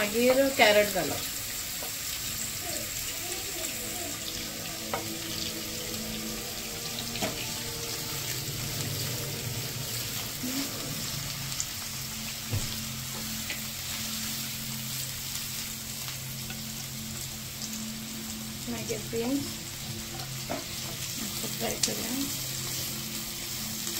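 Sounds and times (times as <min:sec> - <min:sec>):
vegetables sizzling in hot oil: 0:00.0 - 0:23.9.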